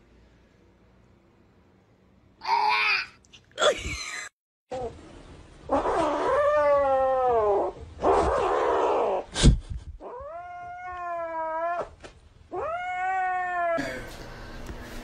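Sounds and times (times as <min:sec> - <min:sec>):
cat yowling: 0:05.7 - 0:09.2, 0:10.0 - 0:13.8.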